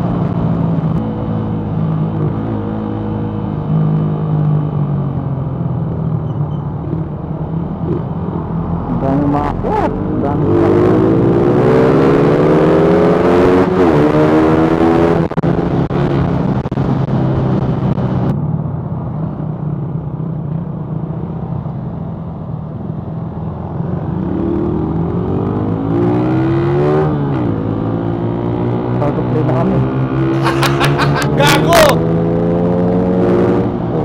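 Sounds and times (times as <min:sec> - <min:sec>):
motorcycle engine accelerating: 0:00.0 - 0:18.3.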